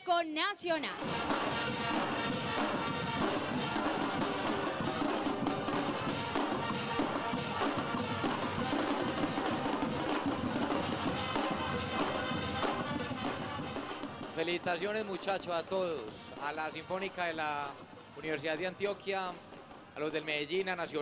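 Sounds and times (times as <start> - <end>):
brass band playing: 0.8 - 16.9
bass drums and cymbals: 1.0 - 14.9.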